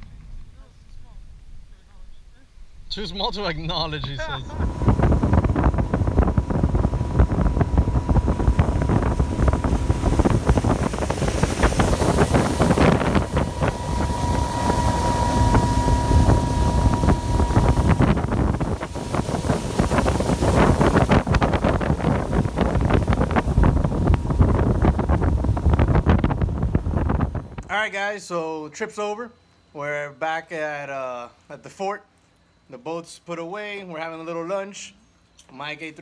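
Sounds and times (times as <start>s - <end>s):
faint steady whine: 0.0s - 36.0s
wind buffeting microphone: 3.9s - 27.7s
outboard motor running: 4.4s - 27.6s.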